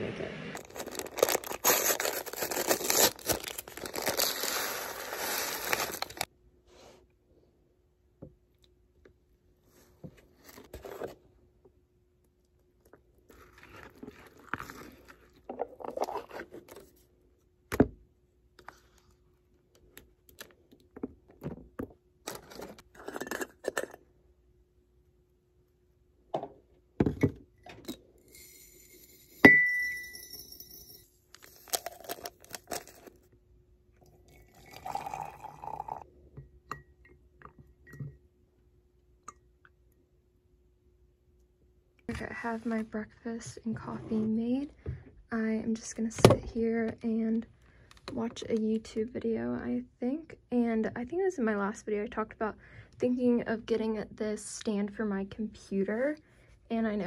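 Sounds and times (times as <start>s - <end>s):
sharp glass clink: 29.4s - 31.0s.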